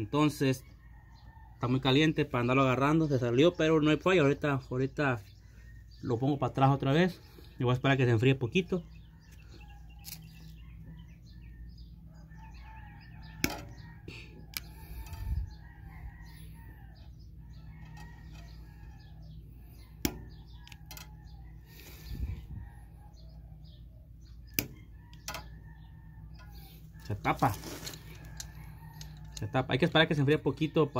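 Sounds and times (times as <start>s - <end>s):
steady low hum: 5.2s - 29.7s.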